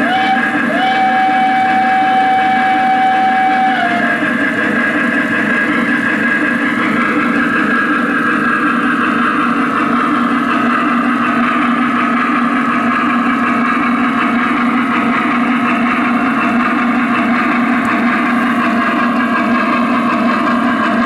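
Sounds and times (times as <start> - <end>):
model train whistle: 0.0 - 4.4.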